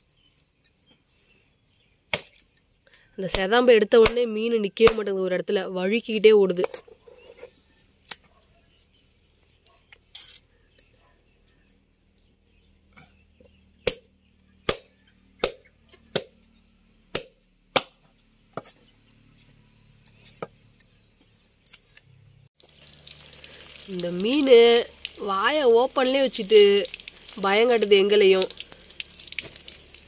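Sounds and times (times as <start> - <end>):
cleaver chopping on wooden board: 13.8 - 16.4, 17.1 - 18.0.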